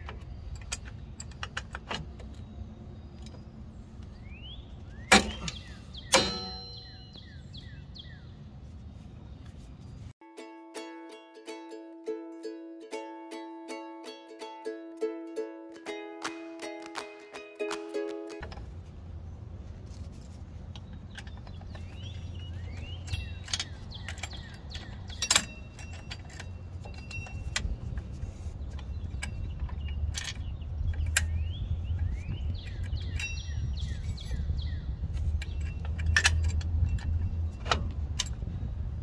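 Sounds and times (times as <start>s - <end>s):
metal springs clinking: 5.0s - 7.2s, 20.8s - 31.4s, 32.0s - 34.4s, 35.2s - 38.5s.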